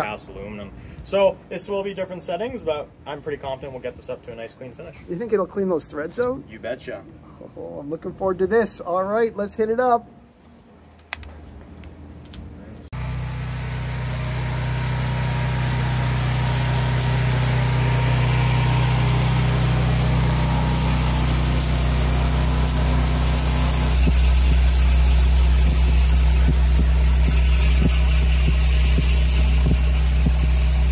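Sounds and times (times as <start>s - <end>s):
laser cleaning machine hissing: 13.0s - 30.9s.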